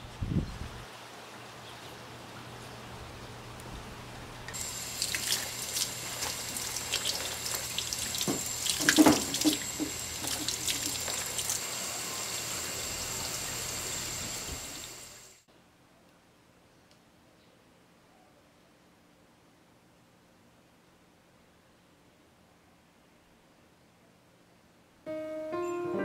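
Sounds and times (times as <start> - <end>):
water splashing from tap: 4.5 - 11.7.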